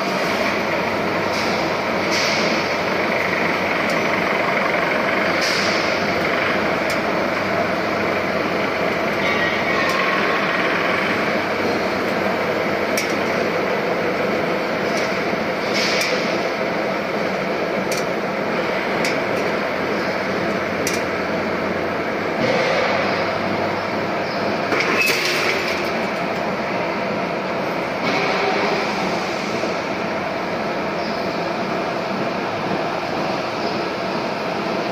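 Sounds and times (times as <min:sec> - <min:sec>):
fence machine mechanical din: 0:00.4 - 0:23.6.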